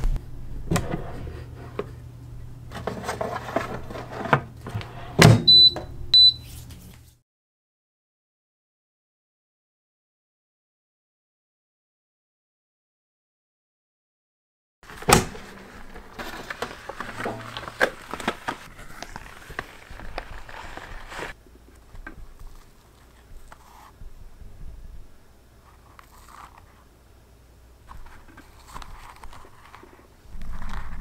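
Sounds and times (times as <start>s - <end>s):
clicks and rustles of handling: 14.9s - 24.0s, 27.8s - 31.0s.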